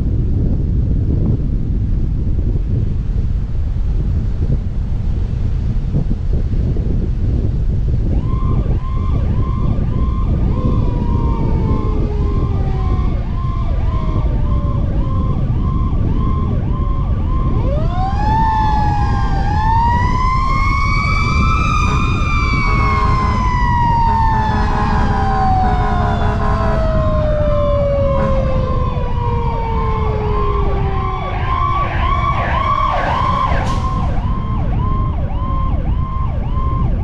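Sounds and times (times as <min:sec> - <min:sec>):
wind rumble on microphone: 0:00.0 - 0:37.0
siren wail: 0:08.0 - 0:37.0
siren yelp: 0:08.1 - 0:37.0.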